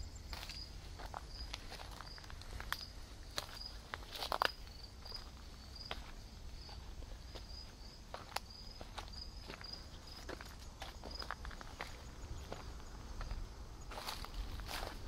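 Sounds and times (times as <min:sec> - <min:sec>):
cricket chirping: 0:00.0 - 0:15.0
footsteps crackling on woodland floor: 0:00.3 - 0:15.0
low steady rumble: 0:09.8 - 0:15.0.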